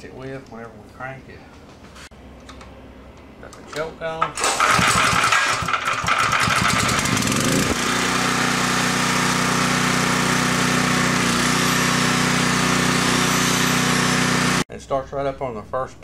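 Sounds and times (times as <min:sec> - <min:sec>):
generator engine starting and running: 0:03.7 - 0:14.6.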